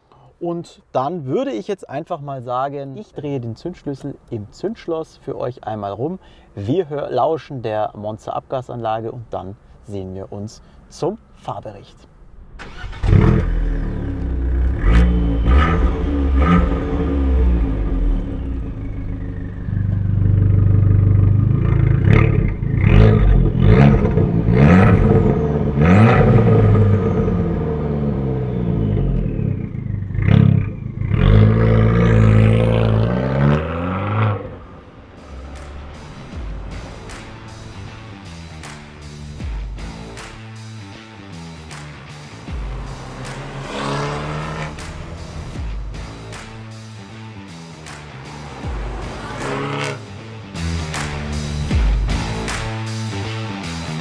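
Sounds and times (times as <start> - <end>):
car engine starting: 12.0 - 54.0
car engine revving: 12.2 - 54.0.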